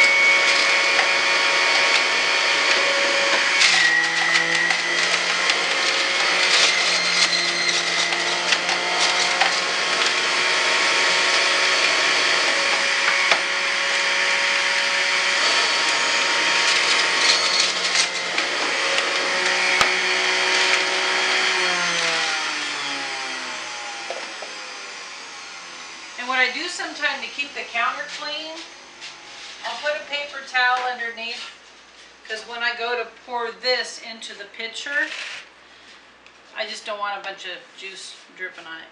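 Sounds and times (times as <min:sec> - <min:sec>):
motor winding down: 0:00.0 - 0:27.1
juicer motor whining: 0:00.0 - 0:27.8.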